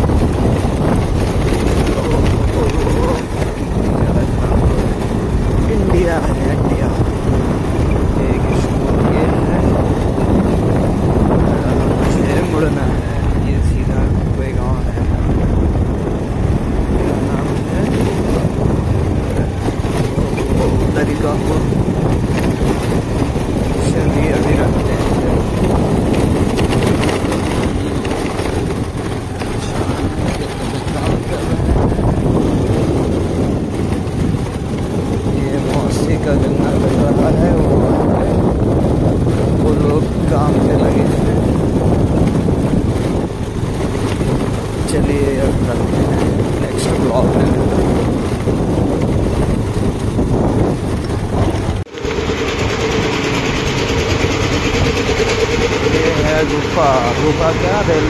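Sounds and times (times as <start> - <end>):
scooter engine and tyres: 0.0 - 58.0
wind buffeting microphone: 0.0 - 58.0
small engine running: 17.0 - 36.3, 51.0 - 58.0.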